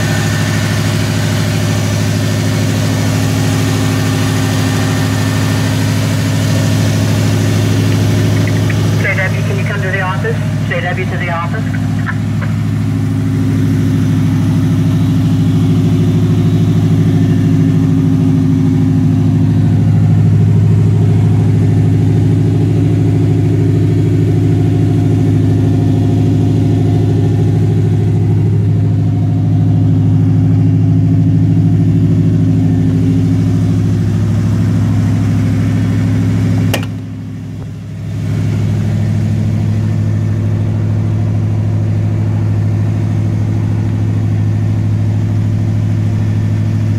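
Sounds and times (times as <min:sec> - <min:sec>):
engine idling: 0:00.0 - 0:46.9
sharp engine knock: 0:36.5 - 0:37.2.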